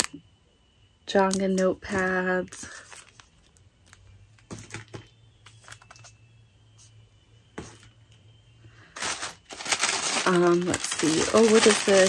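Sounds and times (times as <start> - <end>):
packaging crinkling: 2.7 - 6.1, 8.9 - 12.0
paper rustling and tapping: 4.4 - 6.1.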